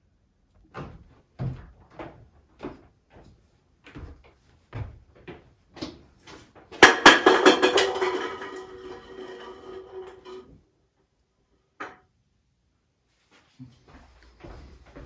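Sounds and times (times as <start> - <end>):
clattering with ringing tones: 6.8 - 10.6.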